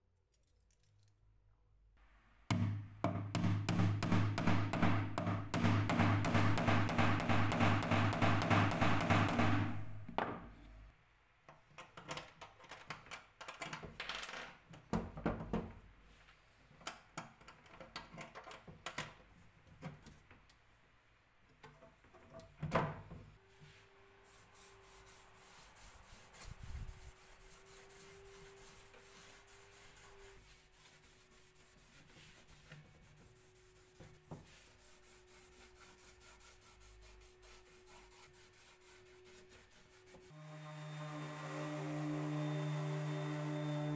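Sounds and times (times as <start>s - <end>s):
applicator rubbing on wood: 24.3s - 40.4s.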